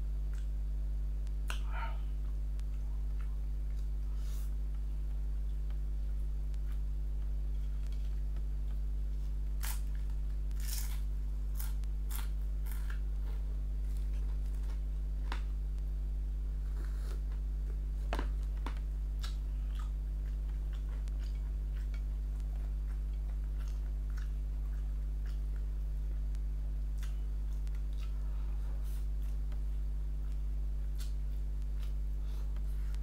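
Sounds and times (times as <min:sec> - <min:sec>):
steady low hum: 0:00.0 - 0:33.0
wet chewing sounds: 0:16.9 - 0:25.8, 0:26.9 - 0:29.5.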